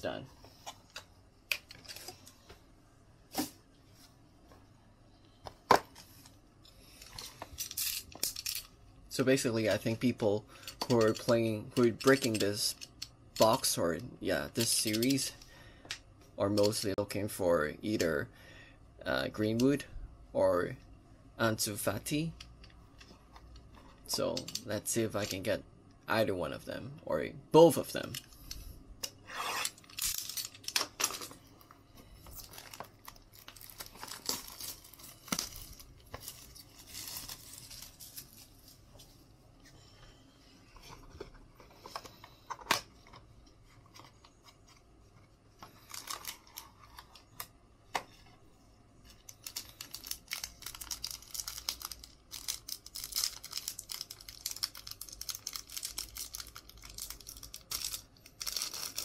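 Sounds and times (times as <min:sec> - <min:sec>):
plastic wrapping tearing and crinkling: 0:32.3 - 0:38.8, 0:45.8 - 0:47.2, 0:49.2 - 0:59.0.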